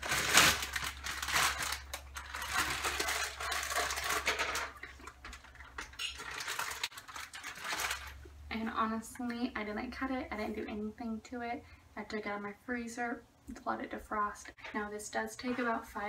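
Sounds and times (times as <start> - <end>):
plastic bag rustling: 0.0 - 8.8.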